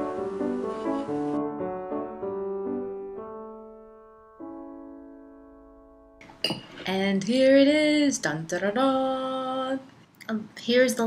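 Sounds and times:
light piano tune: 0:00.0 - 0:07.6.

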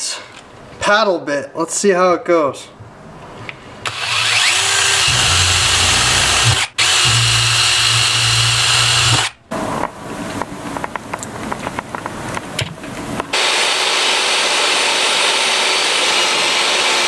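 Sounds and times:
power drill boring through plastic pipe: 0:03.8 - 0:09.4, 0:13.4 - 0:17.0.

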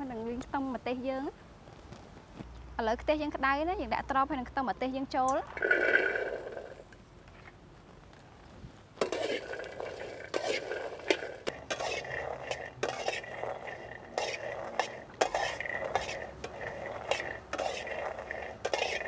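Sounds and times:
metal ladle scraping a wok: 0:09.0 - 0:19.0.

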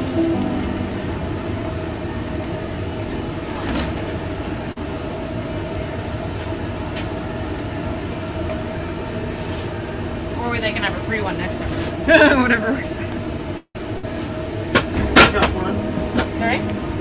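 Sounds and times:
exhaust hood fan humming: 0:13.8 - 0:17.0.

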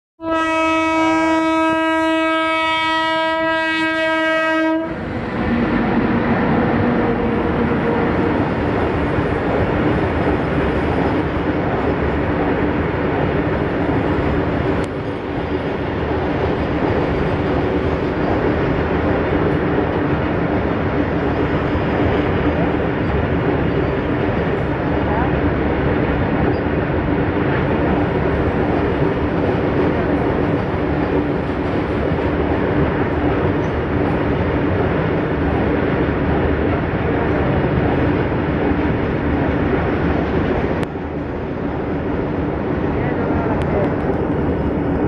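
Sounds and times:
train horn blast: 0:00.2 - 0:08.2
freight train wheels rumbling: 0:00.2 - 0:45.0.

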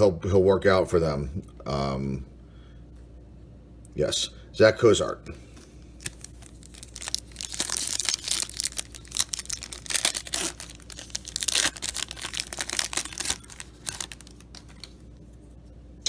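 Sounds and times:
foil wrapper tearing and crinkling: 0:06.0 - 0:15.0.

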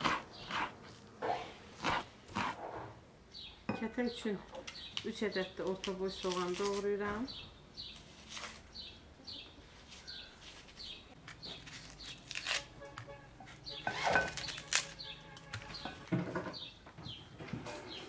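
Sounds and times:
knife scraping onion skin: 0:00.0 - 0:01.0, 0:01.8 - 0:02.6, 0:04.6 - 0:06.9, 0:07.9 - 0:08.7, 0:09.8 - 0:15.8
bird chirping: 0:03.3 - 0:05.7, 0:07.2 - 0:08.1, 0:08.7 - 0:18.0.

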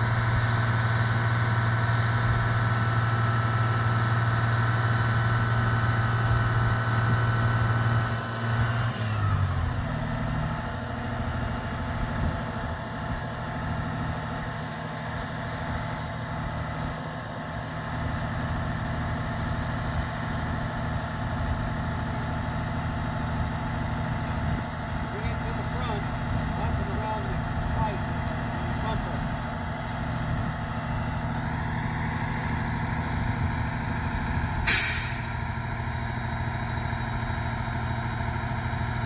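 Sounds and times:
truck engine whining and idling: 0:00.0 - 0:39.0.

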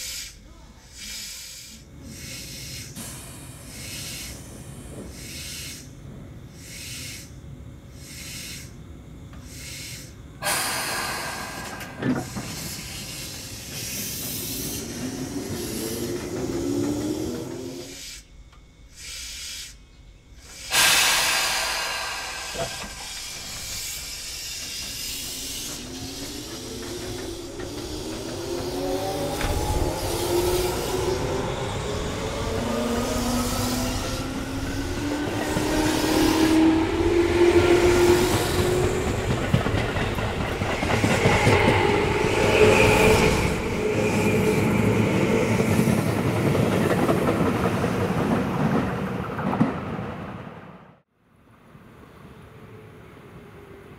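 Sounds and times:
loud hiss: 0:00.0 - 0:08.8, 0:09.4 - 0:16.3, 0:17.5 - 0:46.5
train wheel rumble: 0:00.0 - 0:19.3, 0:20.3 - 0:51.0
electric train motors whining: 0:09.3 - 0:19.4, 0:20.4 - 0:48.7.

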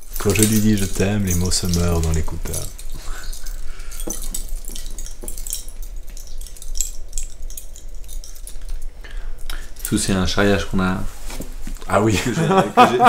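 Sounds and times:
metal pendants clinking: 0:00.0 - 0:12.6.

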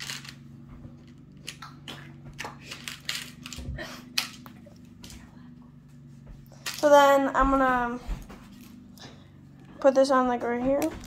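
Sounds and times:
plastic bricks clicking: 0:00.0 - 0:00.4, 0:01.1 - 0:04.5
lawn mower drone: 0:00.0 - 0:11.0.

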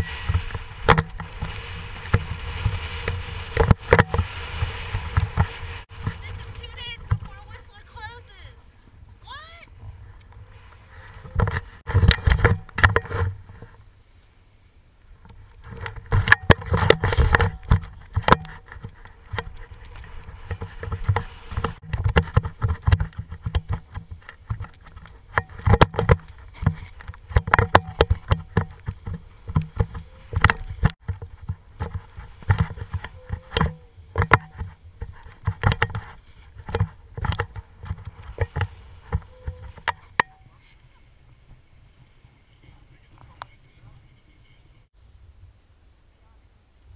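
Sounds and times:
snowboard edges scraping snow: 0:00.0 - 0:09.0, 0:15.6 - 0:25.3, 0:27.9 - 0:34.0, 0:34.6 - 0:43.0.

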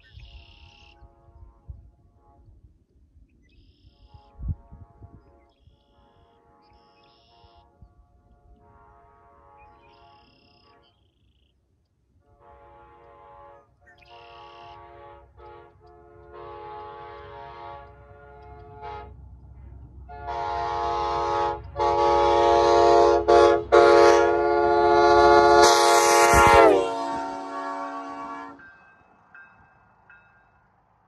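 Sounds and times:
truck air horn blasts: 0:04.1 - 0:11.0, 0:12.3 - 0:19.1, 0:20.1 - 0:28.6.

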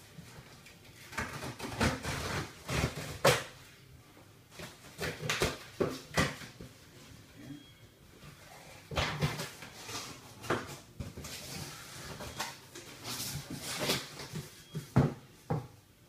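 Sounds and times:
packing tape tearing: 0:01.1 - 0:03.6.

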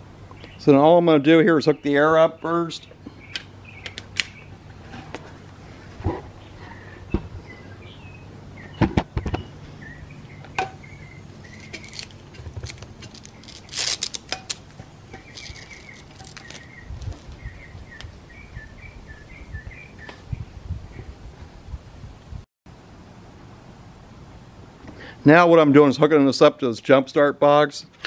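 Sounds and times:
small birds chirping: 0:00.3 - 0:04.8, 0:05.4 - 0:21.2
hose coupler and cables clicking: 0:03.3 - 0:04.4, 0:11.6 - 0:17.1.

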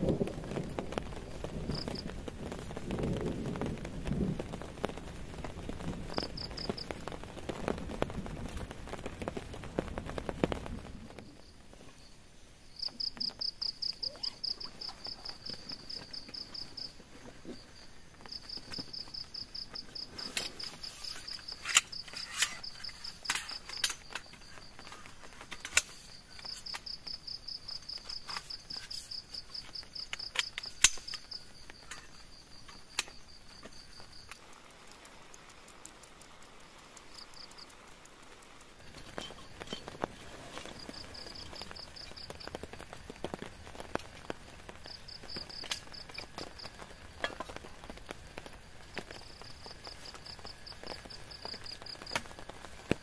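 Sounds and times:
heavy rain: 0:00.0 - 0:53.0
insect trilling: 0:11.2 - 0:52.8.

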